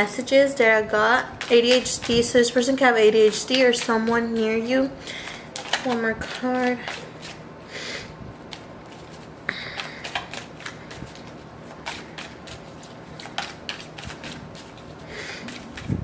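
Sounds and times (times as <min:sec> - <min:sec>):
cards being shuffled: 0:01.4 - 0:07.4, 0:08.4 - 0:16.0.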